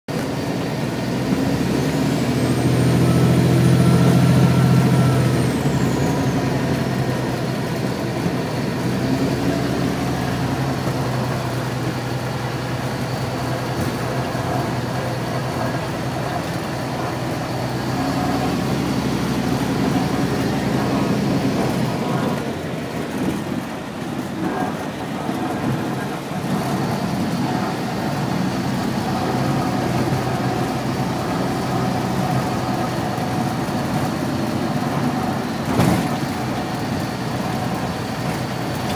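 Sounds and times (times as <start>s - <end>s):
truck engine low drone: 0.1s - 38.9s.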